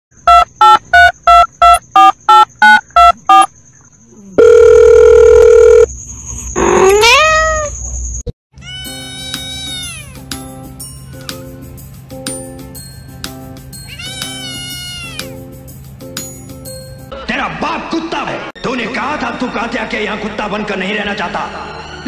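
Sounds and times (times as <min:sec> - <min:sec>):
loud steady tone: 0:00.2 - 0:03.5, 0:04.4 - 0:05.9
short beeps: 0:00.3 - 0:03.5, 0:04.4 - 0:05.9
kitten meowing: 0:06.7 - 0:07.7, 0:08.6 - 0:10.2, 0:13.9 - 0:15.3
cat meowing: 0:06.7 - 0:07.8, 0:08.6 - 0:10.2, 0:13.9 - 0:15.3.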